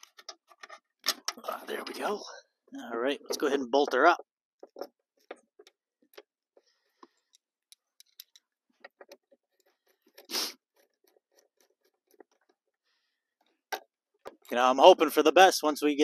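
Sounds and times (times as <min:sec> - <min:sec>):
hand tools clicking and tapping: 0:07.0 - 0:12.6.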